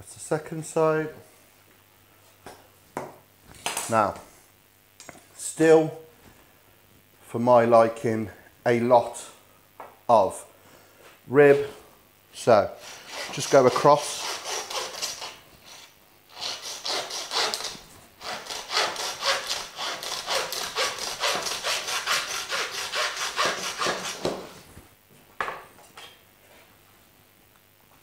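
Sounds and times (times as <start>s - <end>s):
hand saw cutting bone: 12.8s - 24.6s.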